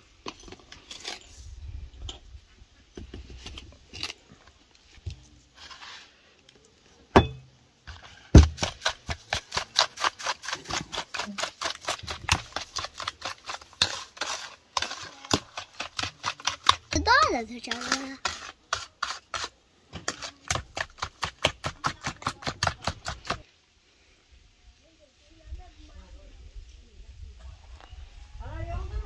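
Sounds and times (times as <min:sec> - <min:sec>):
taps and knocks: 0:08.4 - 0:09.2.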